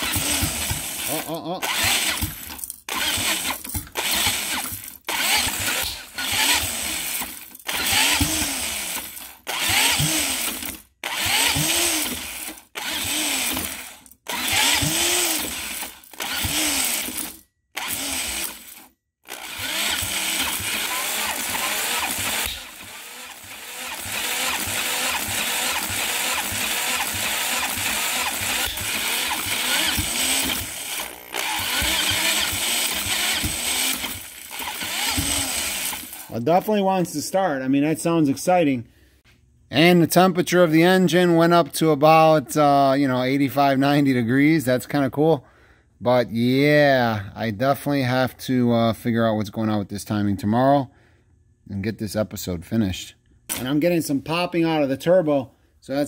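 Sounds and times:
engine being cranked: 0.0s - 36.5s.

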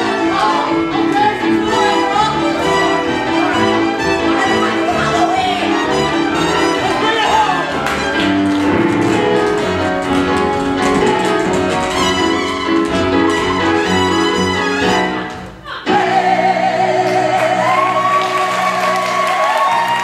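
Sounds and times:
band playing show tune: 0.0s - 20.0s
tap shoes tapping: 5.3s - 15.6s.

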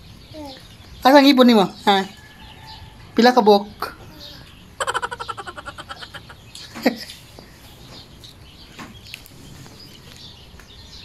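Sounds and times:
faint chirping: 0.0s - 11.0s
chickens clucking: 3.8s - 8.3s.

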